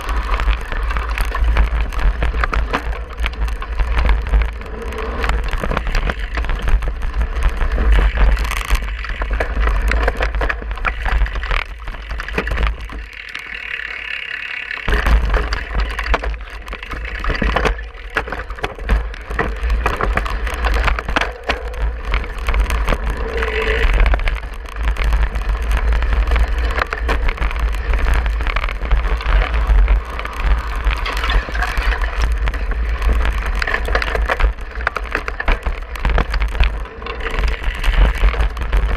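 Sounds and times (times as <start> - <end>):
wind rumble on microphone: 0.0 - 13.3, 14.9 - 38.9
bike rattling over ground: 0.0 - 38.9.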